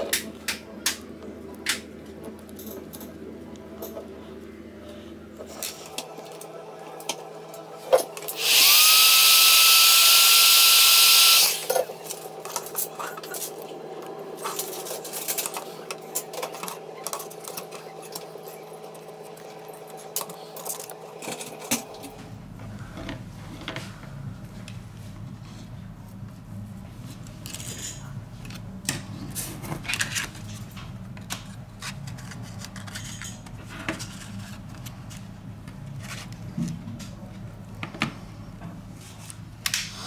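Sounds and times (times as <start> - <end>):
power tool motor whining: 8.3 - 11.7.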